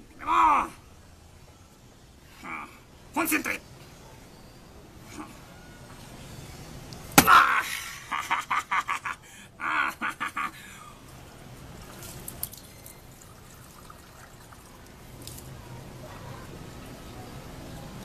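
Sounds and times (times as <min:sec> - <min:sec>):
hand striking coconut: 0:07.2 - 0:07.5.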